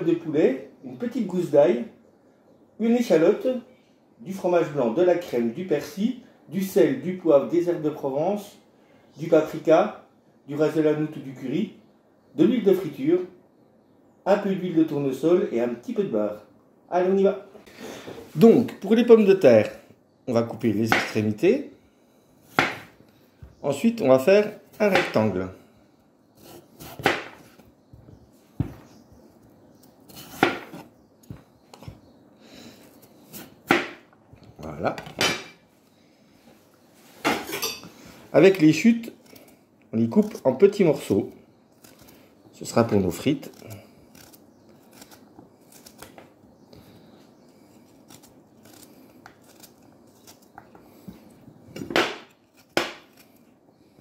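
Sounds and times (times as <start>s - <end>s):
knife cutting potato: 22.5s - 22.9s, 26.4s - 27.6s, 29.8s - 31.4s, 42.8s - 46.3s, 47.7s - 50.8s, 51.8s - 53.4s.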